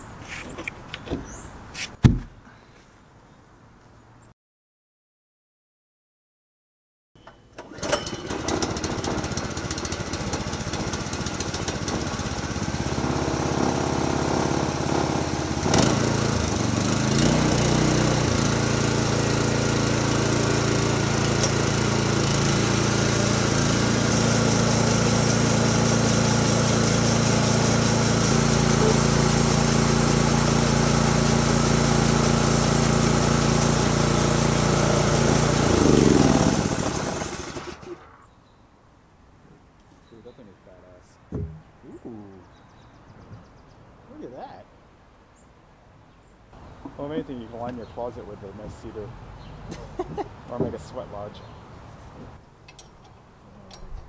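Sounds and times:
band blade cutting log: 1.8s - 2.4s
sharp knock: 2.0s - 2.3s, 41.3s - 41.7s
sawmill gas engine running: 7.6s - 38.2s.

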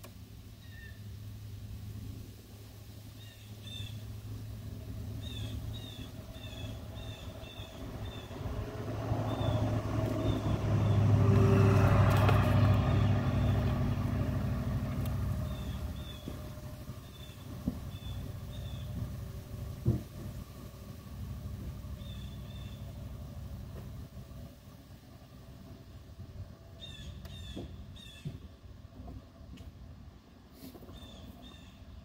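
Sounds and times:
steady low hum: 0.0s - 30.5s
motor vehicle passing by: 0.6s - 28.5s
small birds chirping: 3.1s - 4.1s, 5.1s - 8.6s, 9.2s - 19.0s, 21.9s - 23.0s, 30.8s - 32.0s.

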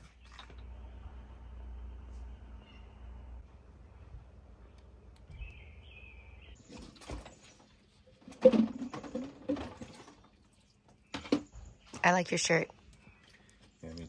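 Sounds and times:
water pouring and splashing: 0.0s - 0.7s, 6.6s - 11.6s
bird chirping: 2.5s - 14.0s
dishes clattering in basin: 8.2s - 10.2s.

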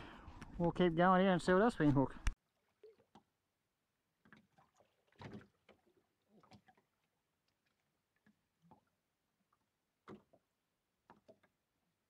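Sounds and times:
faint knocks and taps in boat: 10.0s - 11.6s.

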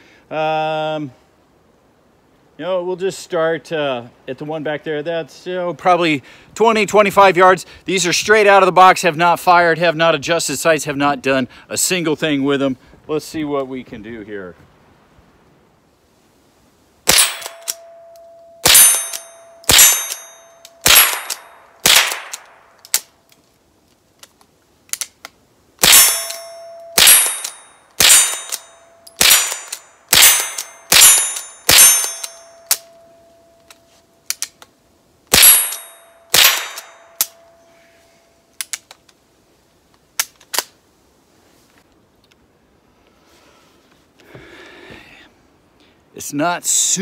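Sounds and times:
rifle shots: 17.1s - 17.9s, 18.6s - 23.0s, 25.8s - 32.9s, 35.3s - 37.4s
steel targets ringing: 17.1s - 22.4s, 25.8s - 33.7s, 35.3s - 38.0s.

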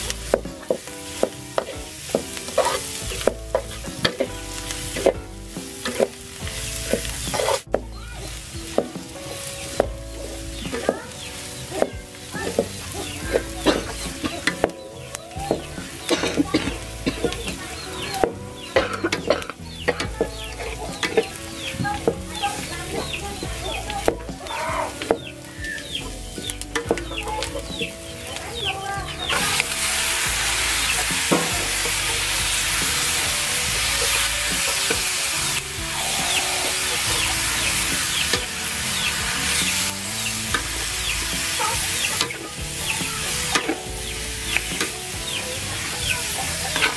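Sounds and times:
food sizzling in a wok: 0.0s - 46.9s
spatula scraping in a wok: 0.1s - 7.7s.

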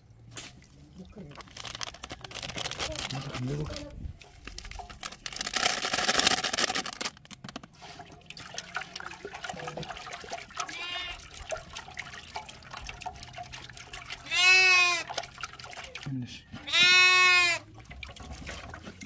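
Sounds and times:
small clicks and rustles: 1.4s - 7.8s
sheep bleating faintly: 10.6s - 11.2s, 14.2s - 15.1s, 16.6s - 17.7s.

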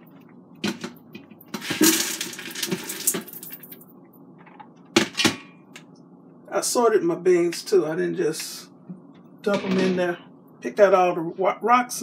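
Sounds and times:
beans rattling into metal pot: 1.5s - 3.8s.

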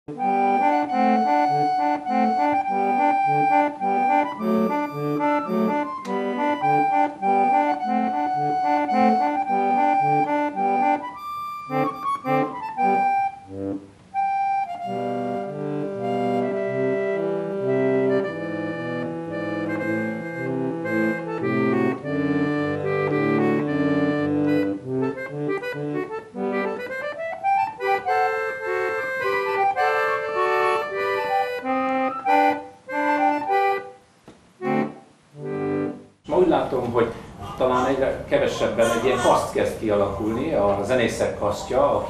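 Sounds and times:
reedy keyboard instrument music: 0.1s - 42.0s.

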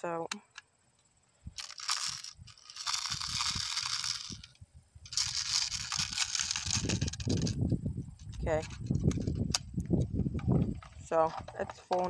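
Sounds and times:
rustling handling noise: 1.6s - 7.6s.

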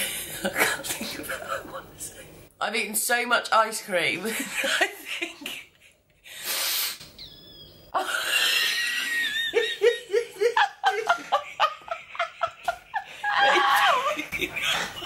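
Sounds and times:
woman laughing hard: 8.0s - 15.0s.

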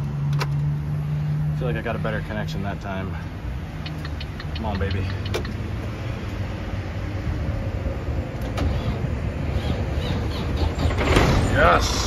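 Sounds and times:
diesel truck engine starting: 6.5s - 12.0s.

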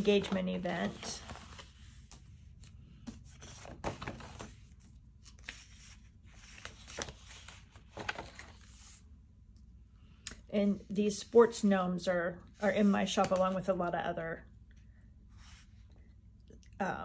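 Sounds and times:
paper pages rustling: 0.0s - 9.0s.

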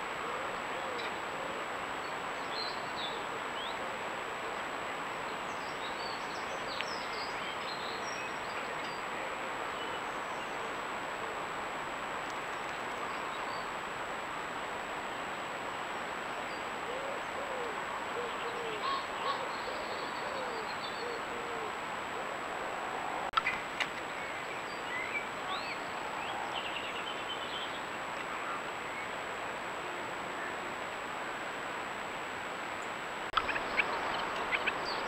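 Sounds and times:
songbird chirps: 0.0s - 21.8s, 23.2s - 31.0s, 32.7s - 35.0s
pigeon cooing: 0.2s - 1.7s, 16.8s - 23.3s.

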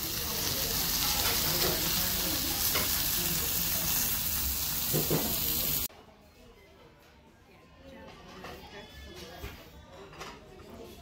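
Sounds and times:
steak sizzling on a hot platter: 0.0s - 5.9s.

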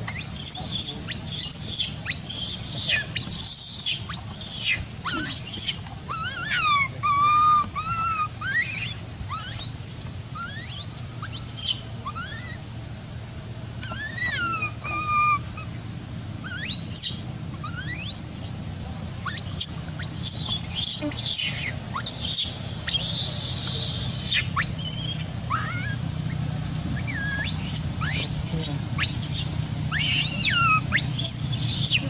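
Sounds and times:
young monkey squealing and screaming: 0.0s - 12.7s, 13.8s - 15.8s, 16.4s - 18.6s, 19.2s - 32.0s.

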